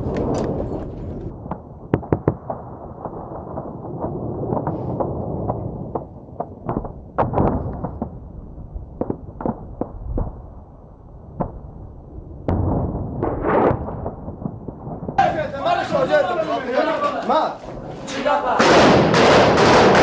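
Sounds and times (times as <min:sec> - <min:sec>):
gunfire shots and bursts: 0:18.6 - 0:20.0.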